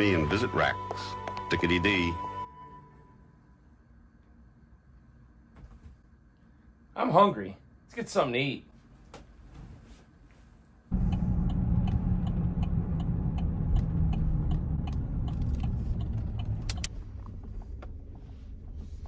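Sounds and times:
light regular ticking: 10.9s - 18.0s
car cabin rumble: 10.9s - 19.0s.

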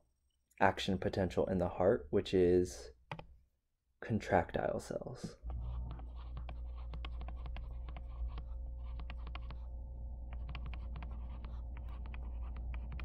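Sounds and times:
stylus tapping on tablet screen: 5.4s - 9.7s, 10.3s - 13.0s
steady low hum: 5.4s - 13.0s.

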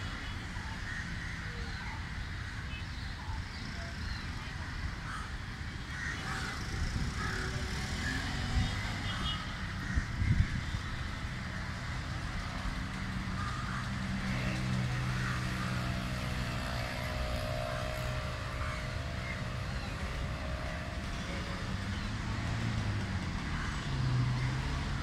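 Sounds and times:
vehicle engine humming: 4.6s - 25.0s.

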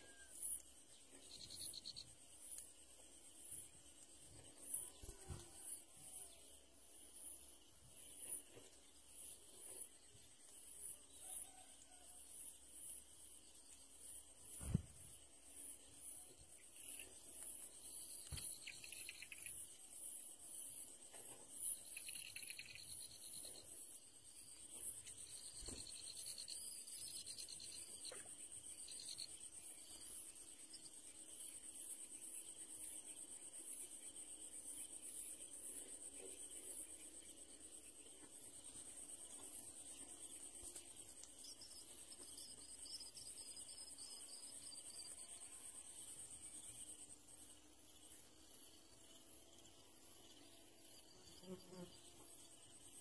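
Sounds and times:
high pulsing insect trill: 0.0s - 53.0s
rapid ticking chirps: 0.4s - 4.8s, 15.3s - 20.9s, 21.5s - 35.5s.

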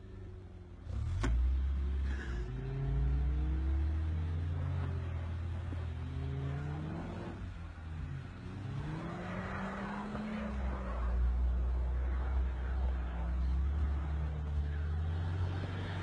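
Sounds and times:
car engine revving: 0.0s - 16.0s.

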